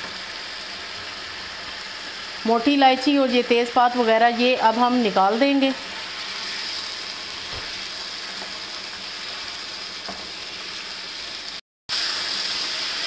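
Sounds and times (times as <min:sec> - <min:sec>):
meat sizzling in oil: 0:00.0 - 0:13.0.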